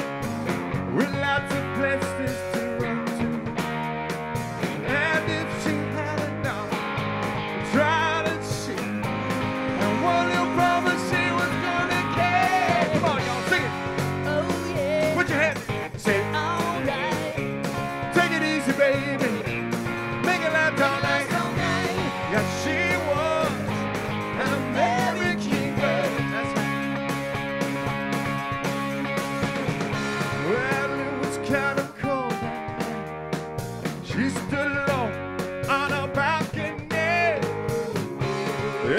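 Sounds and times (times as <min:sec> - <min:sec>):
rock band playing: 0:00.0 - 0:38.9
man singing into microphone: 0:00.9 - 0:03.5, 0:04.8 - 0:06.8, 0:07.6 - 0:09.0, 0:09.8 - 0:17.4, 0:18.0 - 0:19.6, 0:20.2 - 0:23.8, 0:24.4 - 0:26.8, 0:30.3 - 0:33.0, 0:34.0 - 0:37.5, 0:38.6 - 0:38.9.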